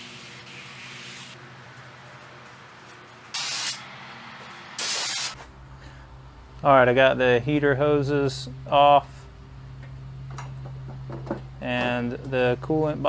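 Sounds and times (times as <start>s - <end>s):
aerosol spray can hissing: 3.4s - 3.8s, 4.8s - 5.4s.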